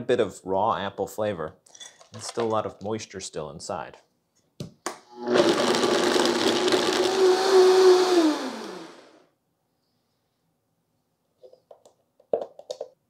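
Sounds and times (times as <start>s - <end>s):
blender motor running: 5.1s - 9.2s.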